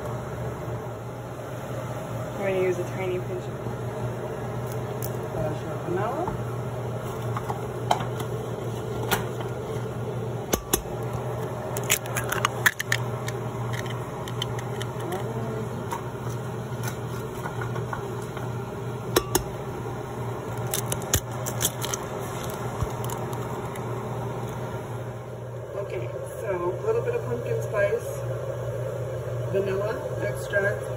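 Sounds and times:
steady low hum: 0.0 - 30.9
egg cracking: 10.5 - 18.4, 20.4 - 24.6.

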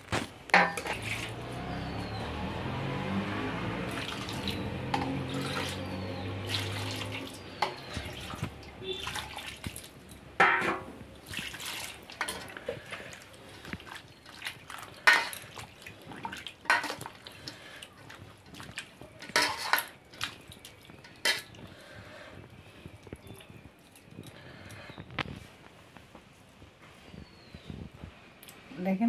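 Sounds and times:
water splashing in a bowl: 0.5 - 1.6, 3.8 - 10.3, 11.1 - 21.8.

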